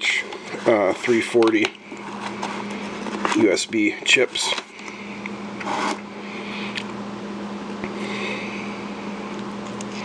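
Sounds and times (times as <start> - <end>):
steady low hum: 0.0 - 10.0
packaging rustling: 0.5 - 3.6.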